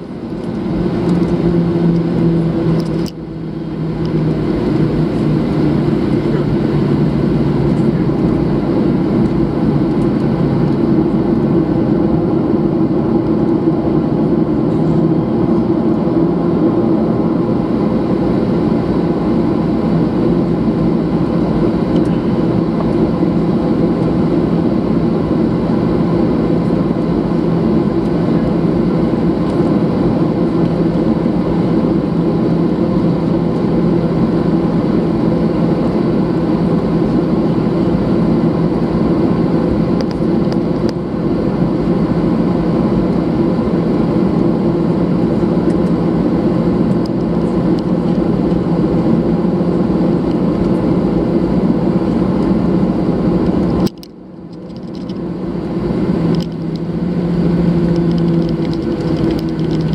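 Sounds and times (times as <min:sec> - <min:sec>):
jet engine hum and drone: 0:00.0 - 0:59.9.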